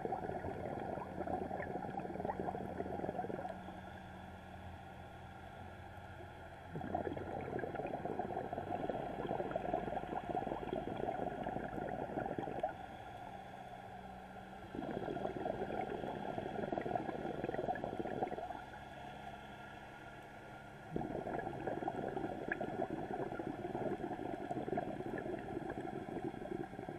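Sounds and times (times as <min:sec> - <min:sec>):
regulator bubbles exhaling: 0:00.0 - 0:03.8, 0:06.7 - 0:12.8, 0:14.6 - 0:18.8, 0:20.9 - 0:26.9
low steady hum: 0:00.0 - 0:26.9.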